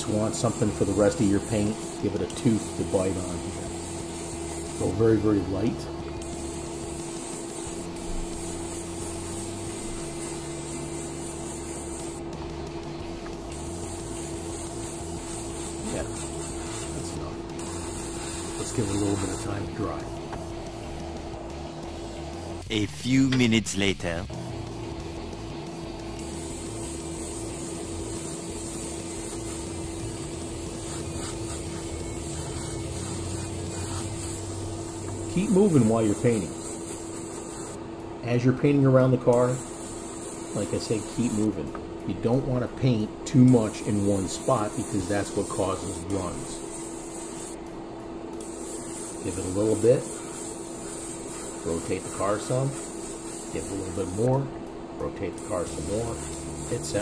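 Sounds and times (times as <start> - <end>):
airbrush spraying hiss: 0.0 - 5.5, 6.2 - 12.4, 13.4 - 20.8, 26.2 - 37.8, 39.3 - 41.6, 43.5 - 47.6, 48.4 - 54.4, 55.3 - 57.0
constant low hum: 0.0 - 57.0.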